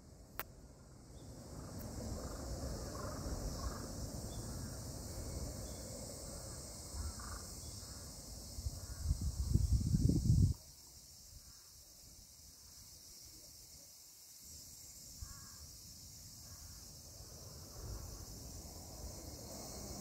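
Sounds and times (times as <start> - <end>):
insects hissing: 0.0 - 20.0
wind rumbling on microphone: 8.4 - 11.5.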